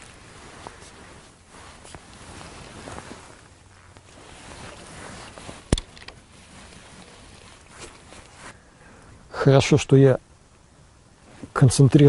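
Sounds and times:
soft rustling: 0.0s - 8.7s.

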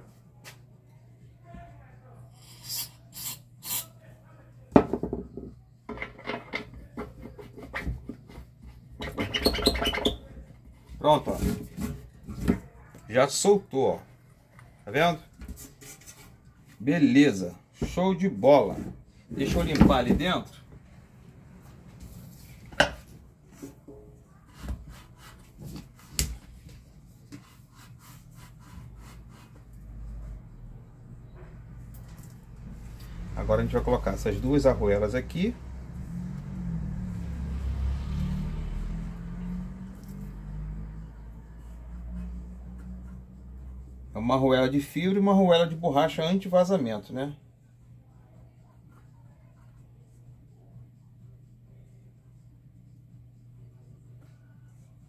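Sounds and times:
squeaky rubbing: 9.0s - 10.4s.

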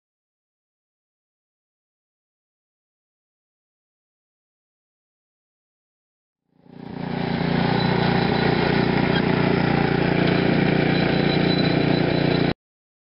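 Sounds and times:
small petrol engine running: 6.5s - 12.6s.

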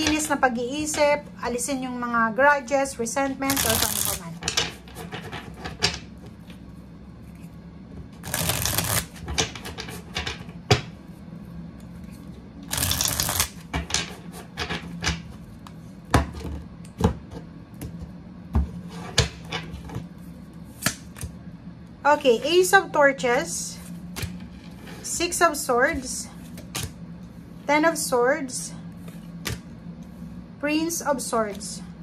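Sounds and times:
cards riffle shuffled: 3.5s - 4.3s, 8.2s - 9.2s, 12.7s - 13.6s.

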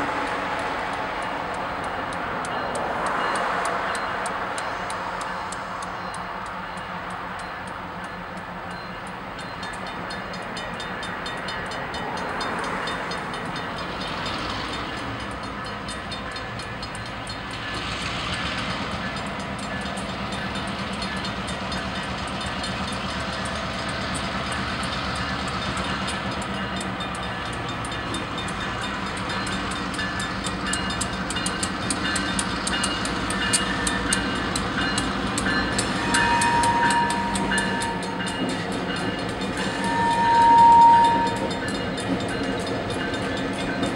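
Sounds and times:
diesel locomotive engines: 0.0s - 43.9s
level-crossing bell ringing: 1.9s - 43.9s
locomotive horn: 35.4s - 41.8s.

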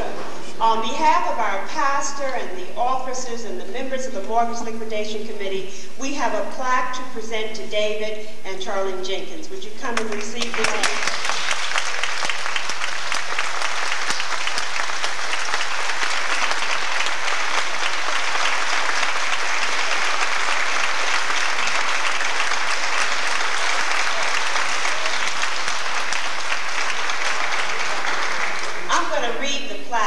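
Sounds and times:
audience applauding: 10.4s - 29.0s.

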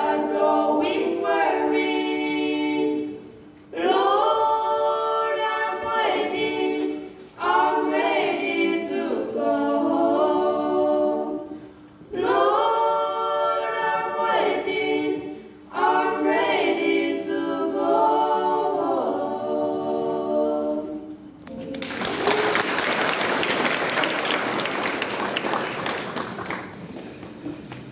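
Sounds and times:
girls singing a cappella: 0.0s - 22.1s
audience applause: 21.6s - 27.4s.

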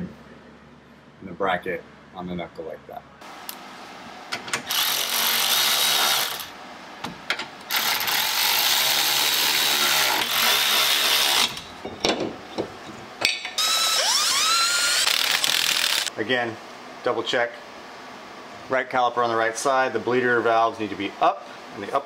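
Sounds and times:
electric ratchet spinning bolts: 4.6s - 6.5s, 7.7s - 11.7s, 13.4s - 16.1s.

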